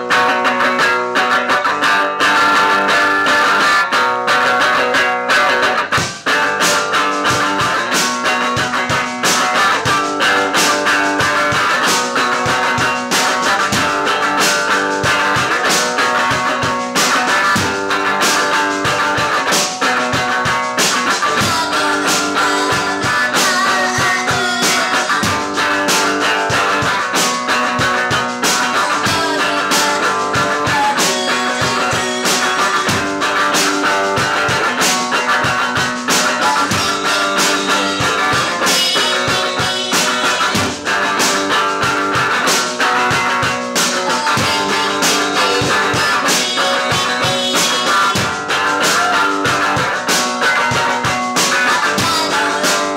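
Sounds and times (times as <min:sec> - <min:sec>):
rock electric guitar: 0:00.0 - 0:52.9
woman singing: 0:15.3 - 0:42.0, 0:42.9 - 0:52.9.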